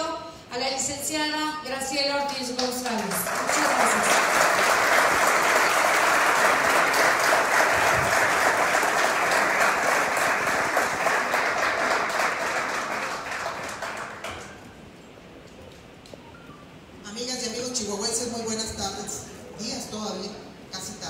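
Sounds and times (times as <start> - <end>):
audience clapping: 2.3 - 14.8.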